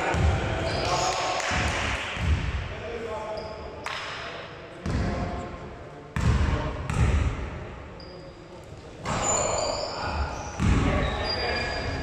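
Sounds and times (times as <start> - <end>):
sneakers squeaking: 0.1 - 1.2, 3.3 - 3.8, 8.0 - 12.0
basketball bouncing: 10.6 - 10.9.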